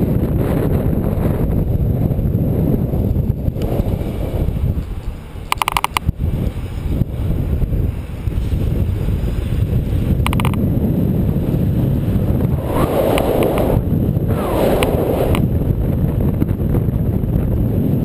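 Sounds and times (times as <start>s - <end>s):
wind buffeting microphone: 0.0s - 18.0s
clicks: 5.5s - 6.1s, 10.2s - 10.6s, 14.7s - 15.4s.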